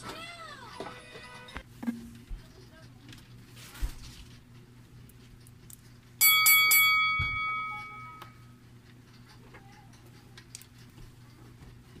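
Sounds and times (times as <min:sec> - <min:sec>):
faint steady hum: 0:00.1 - 0:12.0
bell ringing: 0:06.2 - 0:08.4.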